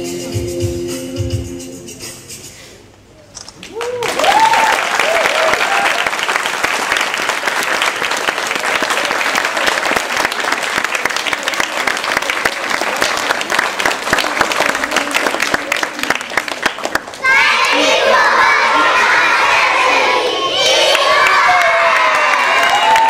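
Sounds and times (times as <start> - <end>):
audience applauding: 3.6 - 17.8, 20.9 - 23.0.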